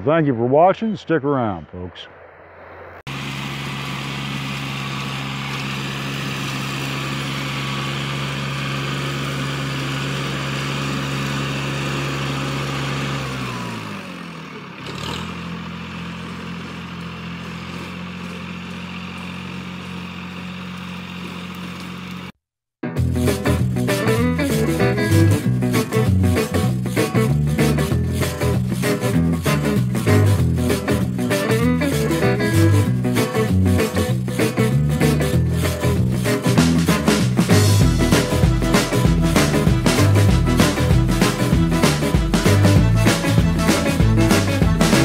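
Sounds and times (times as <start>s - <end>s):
tractor engine with rotary cutter: 1.9s - 22.4s, 23.2s - 45.0s.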